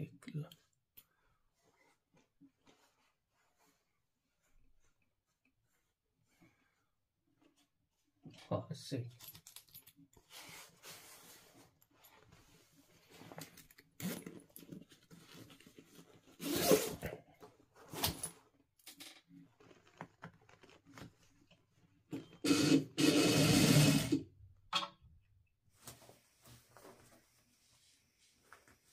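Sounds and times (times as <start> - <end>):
sewing machine running: 22.4 - 24.2.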